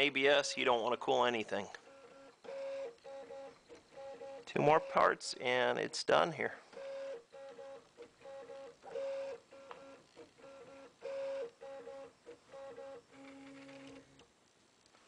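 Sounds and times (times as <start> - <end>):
printer stepper motors whirring: 1.8 - 5.1, 6.7 - 14.2.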